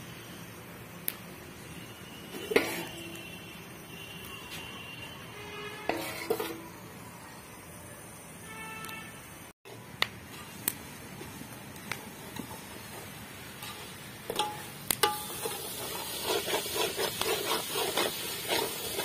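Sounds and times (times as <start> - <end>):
stirring and scraping in pot: 2.3 - 3.2, 5.7 - 6.8, 12.2 - 19.0
wood fire crackling: 9.8 - 19.0
metal ladle clinking on pot: 14.3 - 15.5.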